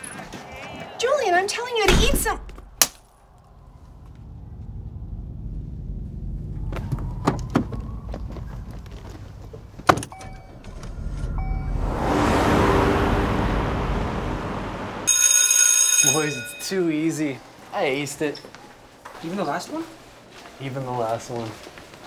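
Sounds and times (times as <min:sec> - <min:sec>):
car engine rumbling: 0:02.6 - 0:15.1
car passing by: 0:10.1 - 0:15.1.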